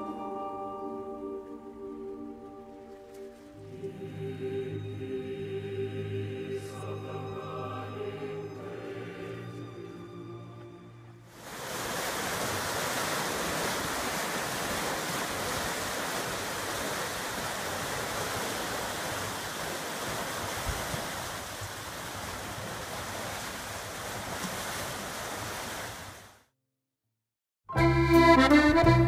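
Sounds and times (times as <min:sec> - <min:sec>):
water rushing into lock: 0:11.2 - 0:26.4.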